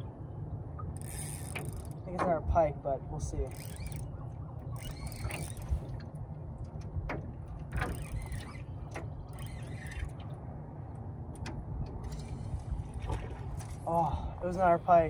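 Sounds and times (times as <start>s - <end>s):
wind rumble on microphone: 0.0s - 15.0s
fishing reel clicking: 1.0s - 2.0s, 3.5s - 4.1s, 4.8s - 5.8s, 9.3s - 10.0s.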